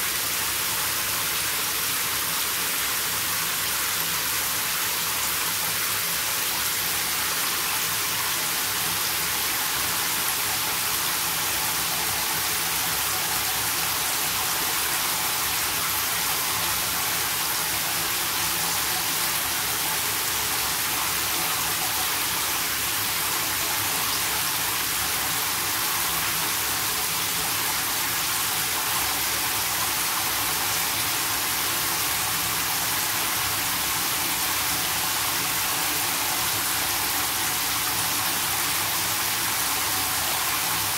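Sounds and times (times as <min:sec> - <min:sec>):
shower water spraying into bathtub: 0:00.0 - 0:40.9.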